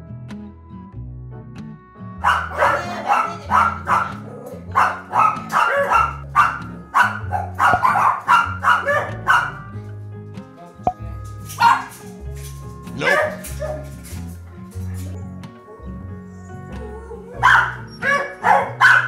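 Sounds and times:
background music: 0.0 - 19.0
small dog barking rapidly: 2.2 - 9.6, 11.6 - 11.9, 13.0 - 13.8, 17.4 - 19.0.

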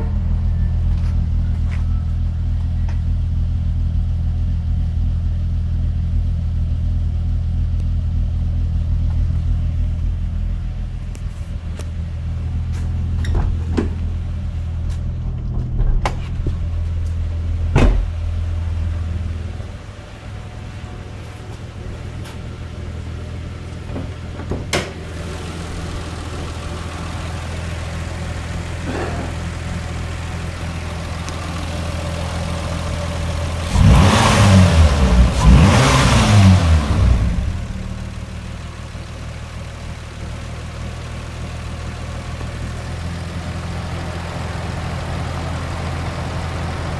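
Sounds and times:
car engine idling: 0.0 - 46.9
engine revving: 25.0 - 38.6.

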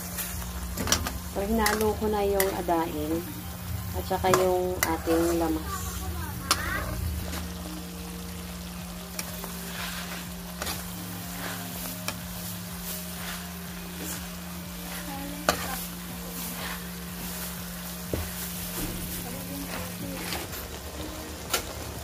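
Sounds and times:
soft sizzle: 0.0 - 22.0
spatula scraping metal pan: 9.2 - 17.5.

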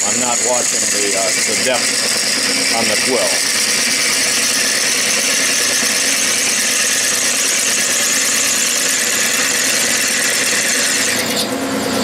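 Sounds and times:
drill cutting brass hiss: 0.0 - 11.4
lathe machine hum: 0.0 - 12.0.

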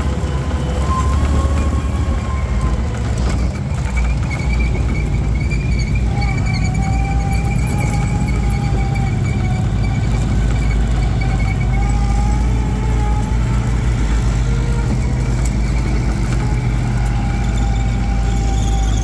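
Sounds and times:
car engine running: 0.0 - 19.0.

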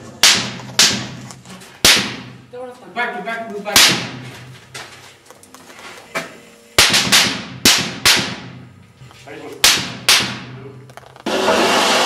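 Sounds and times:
bullets cracking at targets: 0.2 - 2.4, 6.8 - 8.7, 9.6 - 11.2
rifle shots: 1.8 - 2.4, 6.8 - 8.6.

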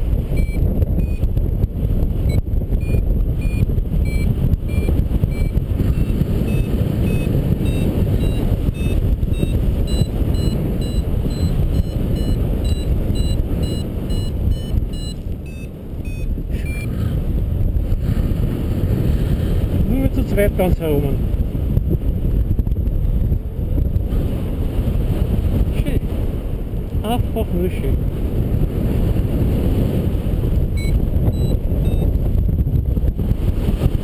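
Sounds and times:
wind rushing over microphone: 0.0 - 34.0
variometer beeping: 0.3 - 1.5, 2.2 - 17.0, 30.7 - 32.2.

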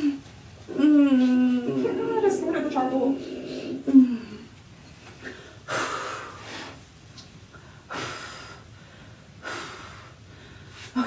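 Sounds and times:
sharp noisy breaths: 5.2 - 11.0.

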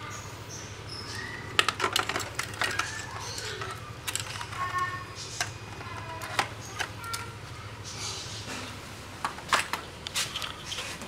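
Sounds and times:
hard plastic clicks and scrapes: 1.5 - 7.3.

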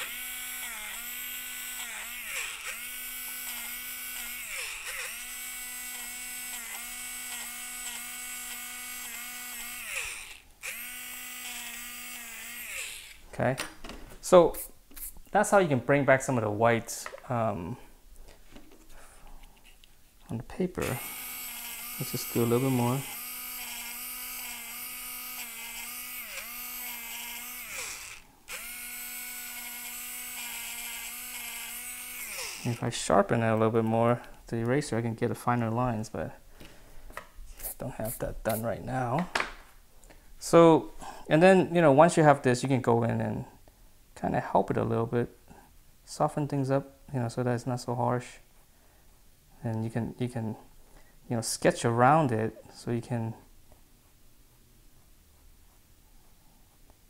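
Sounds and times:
electric eraser motor whirring: 0.0 - 13.2, 20.8 - 32.8.

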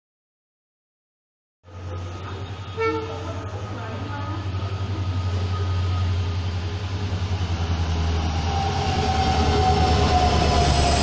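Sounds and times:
electric train passing: 1.7 - 11.0
locomotive whine: 1.7 - 11.0.

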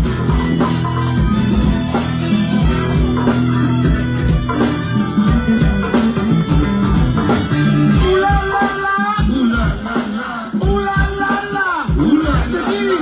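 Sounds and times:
low bass line: 0.0 - 8.6
sustained pitched notes: 0.0 - 11.1
live band playing: 0.0 - 13.0.

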